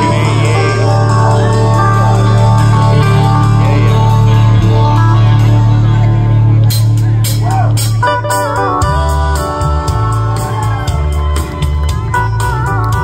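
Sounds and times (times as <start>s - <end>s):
electric guitar lines: 0.0s - 13.0s
live country-rock band: 0.0s - 13.0s.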